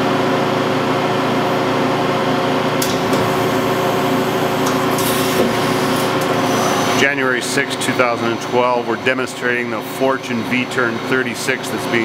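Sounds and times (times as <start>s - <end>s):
machine hum: 0.9s - 8.9s.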